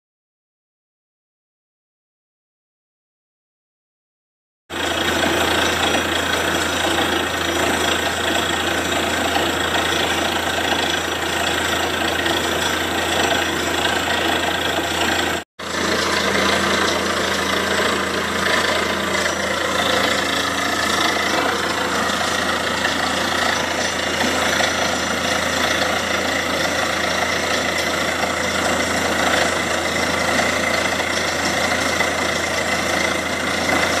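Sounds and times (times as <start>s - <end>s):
drilling rig engine running: 4.7s - 34.0s
rush of water and slurry: 4.8s - 34.0s.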